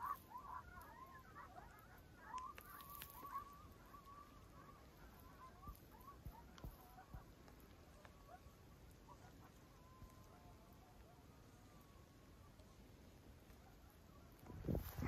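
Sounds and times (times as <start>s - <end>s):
distant chorus of animal calls: 0.0s - 15.0s.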